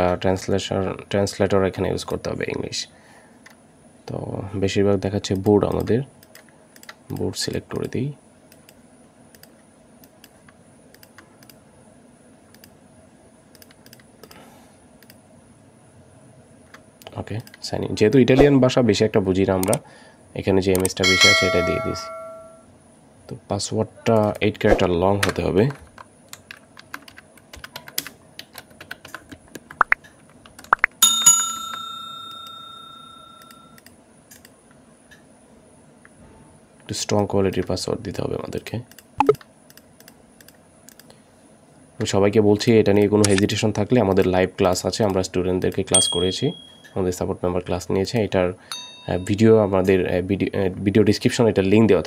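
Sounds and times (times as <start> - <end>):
computer mouse clicks: 8.5 - 11.6, 12.5 - 12.8, 13.5 - 14.4, 15.0 - 15.2, 33.4 - 34.6, 38.9 - 41.2
notification bell ding: 21.0 - 22.6, 31.0 - 33.7, 46.0 - 46.8
keyboard typing: 26.3 - 31.0.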